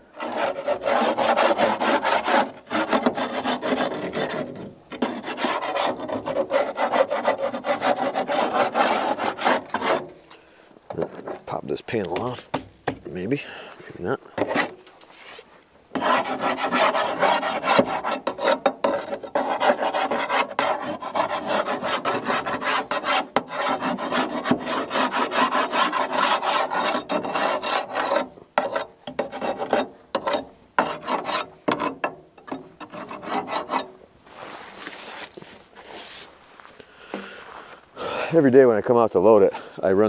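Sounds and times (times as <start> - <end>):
metal scraper rasping on metal: 0.1 - 10.3, 14.4 - 15.3, 15.9 - 34.0.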